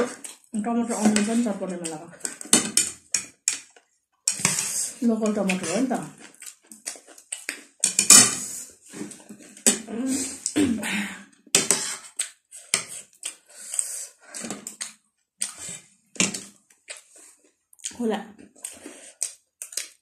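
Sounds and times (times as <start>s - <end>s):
chewing and mouth sounds: 0.0s - 0.5s, 5.4s - 7.8s, 12.0s - 20.0s
cutlery clicking on ceramic plates: 4.3s - 4.6s, 7.8s - 8.4s.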